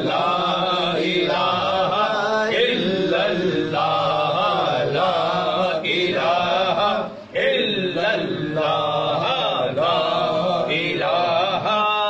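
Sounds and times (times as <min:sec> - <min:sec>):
devotional chanting: 0:00.0 - 0:12.0.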